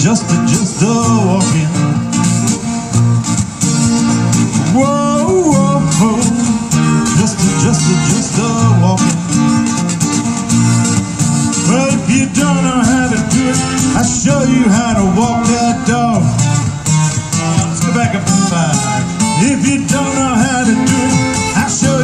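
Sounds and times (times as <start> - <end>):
acoustic guitars strumming: 0.0 - 22.0
sliding lead guitar melody: 0.0 - 22.0.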